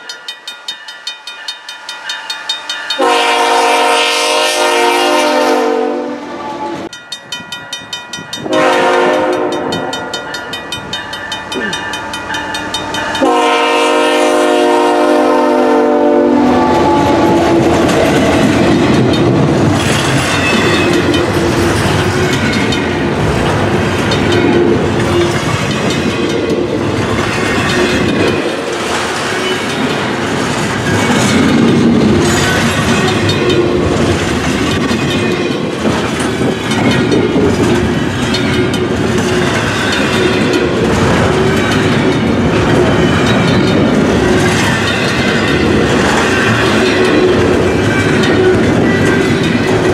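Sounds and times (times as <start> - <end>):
locomotive air horn blasts: 3.0 - 6.9, 8.4 - 10.1, 13.2 - 17.8
wheels clacking over rail joints: 6.8 - 14.2, 16.7 - 49.9
freight cars rumbling: 16.6 - 49.9.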